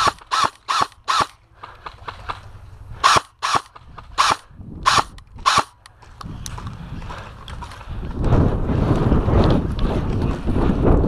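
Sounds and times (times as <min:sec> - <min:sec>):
airsoft rifle shots: 0:00.0 - 0:02.4, 0:03.0 - 0:05.8
wind noise on microphone: 0:00.0 - 0:11.0.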